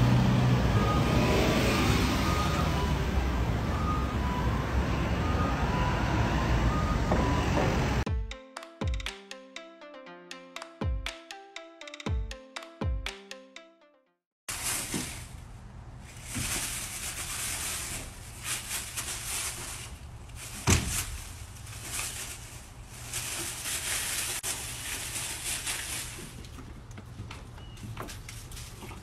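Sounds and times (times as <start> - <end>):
dry leaves rustling and crunching: 14.5 - 26.8.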